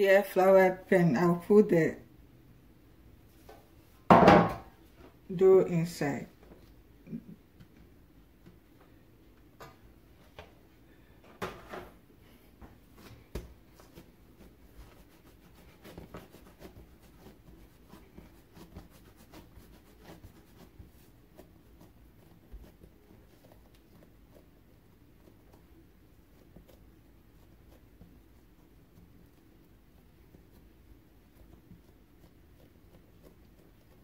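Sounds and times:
hands patting and rubbing dough: 6.4 - 34.0.

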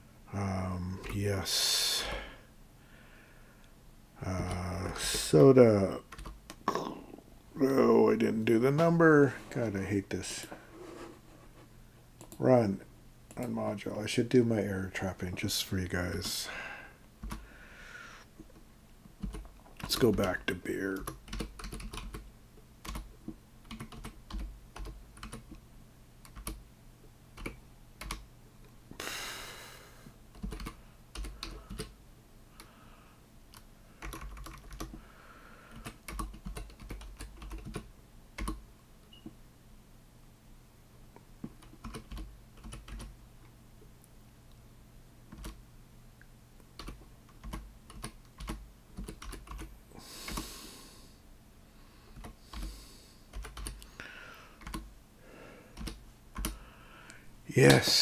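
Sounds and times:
faint low hum: 0.0 - 58.0
typing on computer keyboard: 6.1 - 6.6, 17.2 - 17.4, 19.2 - 20.3, 21.0 - 22.2, 22.8 - 25.6, 26.2 - 26.6, 27.4 - 28.2, 30.3 - 31.9, 33.5 - 35.0, 35.7 - 38.6, 41.5 - 43.1, 45.3 - 45.6, 46.8 - 49.7, 53.3 - 53.8, 54.6 - 54.9, 55.8 - 56.6.

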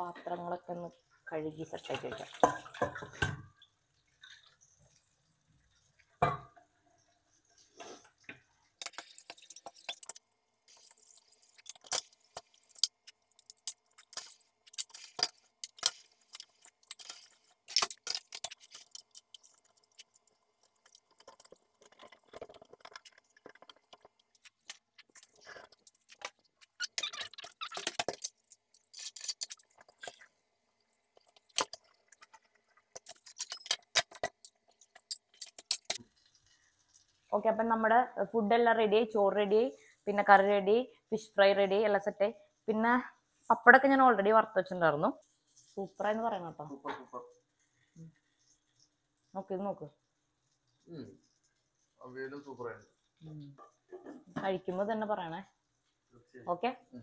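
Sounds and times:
steel dishes clattering: 1.9 - 3.5, 33.0 - 36.0.

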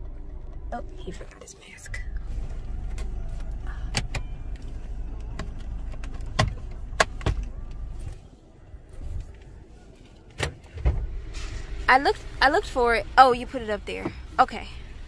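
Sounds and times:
low rumble: 0.0 - 15.0
clicks and knocks in car cabin: 2.7 - 8.2.

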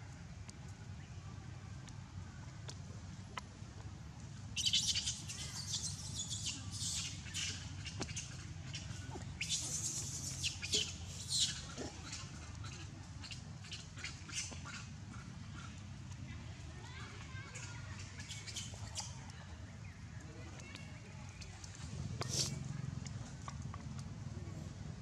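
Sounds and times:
baby monkey squealing: 4.6 - 15.7.

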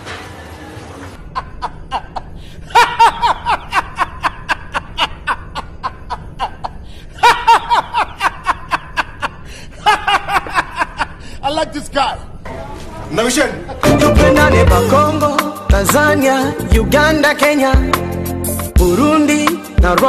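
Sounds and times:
man laughing: 1.2 - 11.3.

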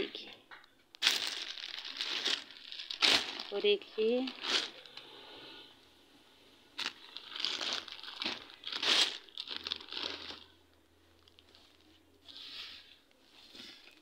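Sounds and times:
plastic packaging crinkling: 0.9 - 5.0, 6.8 - 12.0.

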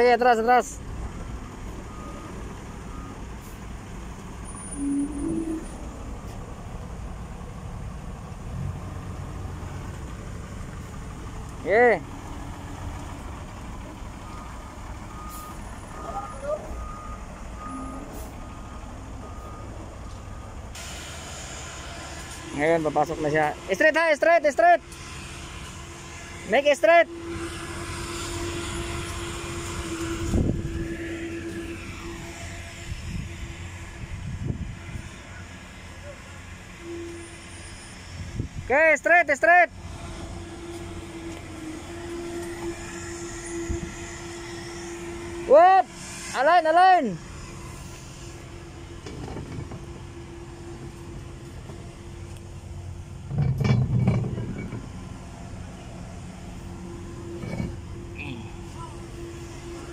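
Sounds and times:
forklift engine droning: 0.0 - 59.9
held tone: 4.4 - 6.4, 53.4 - 55.1, 56.6 - 59.9
rumble with metallic clatter: 47.5 - 59.9.

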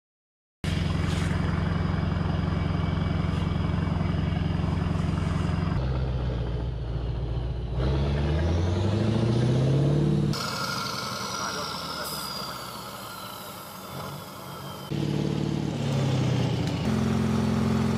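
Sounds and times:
heavy diesel truck engine: 0.6 - 17.9.

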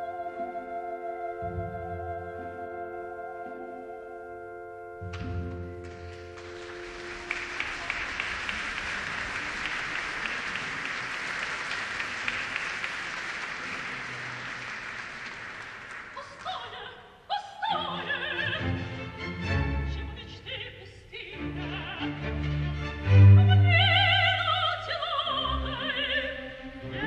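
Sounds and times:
soprano singing: 0.0 - 5.0, 16.2 - 27.0
orchestra playing: 0.0 - 16.0, 17.7 - 20.6, 21.2 - 27.0
audience applauding: 5.5 - 16.9.

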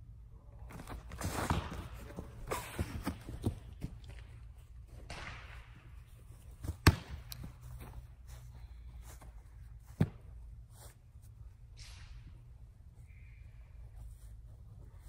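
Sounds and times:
feet scuffing on artificial turf: 6.2 - 11.5.

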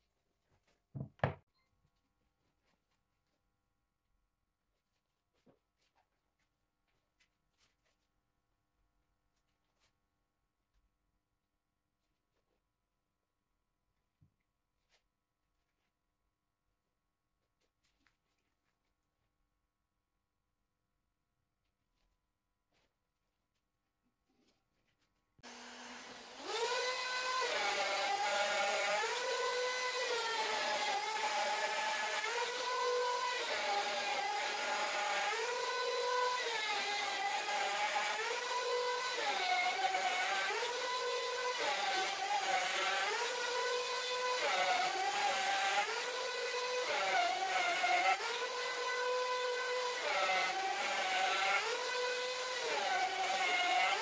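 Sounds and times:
wood router cutting: 25.4 - 54.0.

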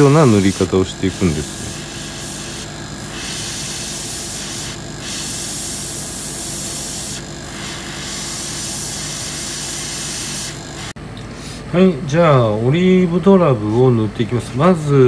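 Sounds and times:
airbrush spraying paint: 0.0 - 11.0.

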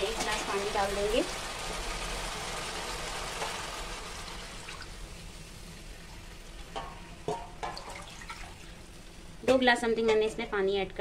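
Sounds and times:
water pouring into pan: 0.5 - 5.1, 7.6 - 8.8.

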